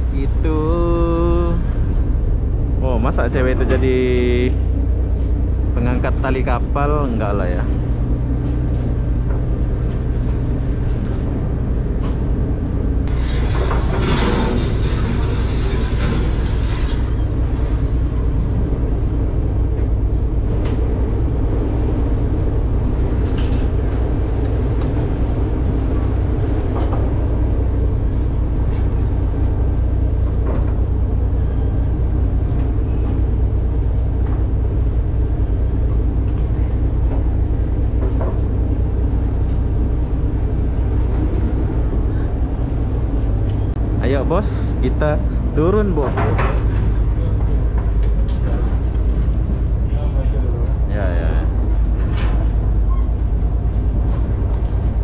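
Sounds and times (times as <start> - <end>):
ferry engines droning: 0.0 - 55.0
hissing rush: 46.0 - 47.1.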